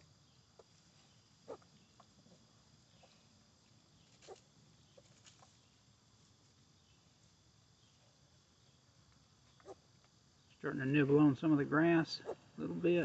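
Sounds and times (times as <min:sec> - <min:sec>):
piglets grunting and squeaking: 0:01.5 - 0:02.2, 0:12.2 - 0:12.5.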